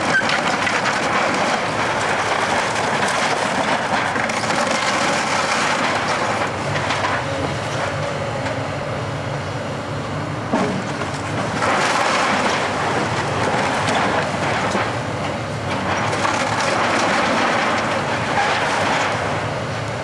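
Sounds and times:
stone and timber crashing down: 0.0s - 7.2s, 11.4s - 15.0s, 15.8s - 19.2s
excavator diesel engine under load: 0.0s - 20.0s.

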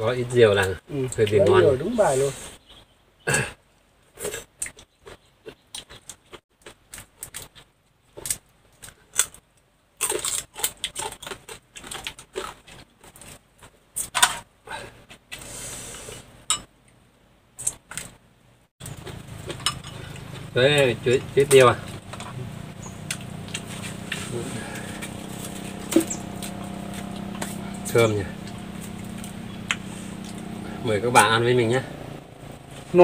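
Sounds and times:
crab shells cracking and crunching: 4.5s - 13.4s.

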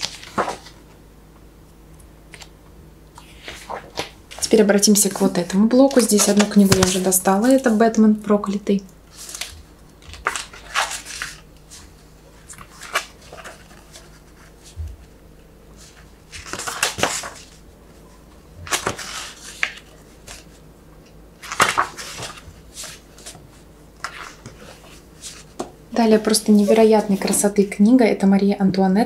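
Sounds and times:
glossy pages turning: 0.0s - 0.8s, 9.1s - 14.8s, 15.8s - 17.6s, 18.6s - 20.6s, 21.4s - 23.4s.

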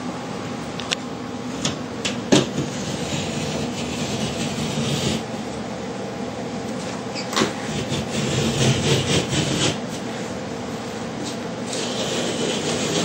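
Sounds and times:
steady background hum: 0.0s - 13.0s
saw rasping through drywall: 2.4s - 5.3s, 7.4s - 9.9s, 11.7s - 13.0s.

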